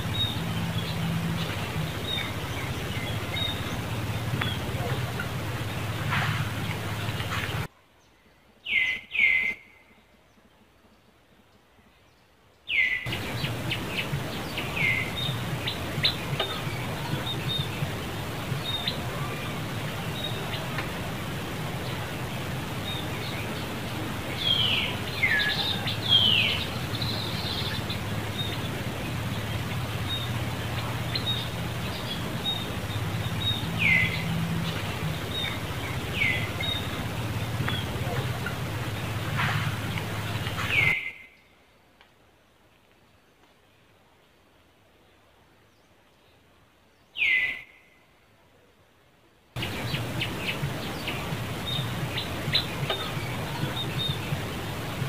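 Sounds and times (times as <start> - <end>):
high chirping calls: 0.0 - 7.7, 12.7 - 41.1, 49.6 - 55.0
steady low outdoor hum: 0.0 - 8.7, 9.8 - 41.4, 49.3 - 55.0.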